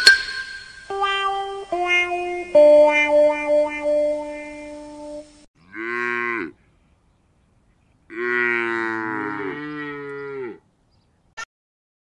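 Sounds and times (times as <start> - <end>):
held musical chord: 0.3 - 5.5
cow mooing: 5.6 - 6.6, 8.1 - 10.6.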